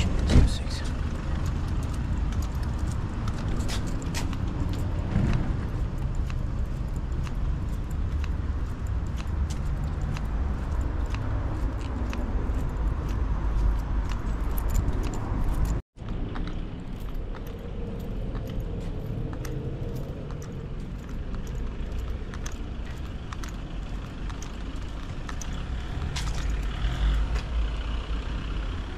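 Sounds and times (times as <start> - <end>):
wind rumble on microphone: 0.0 - 21.8
road noise: 0.0 - 28.9.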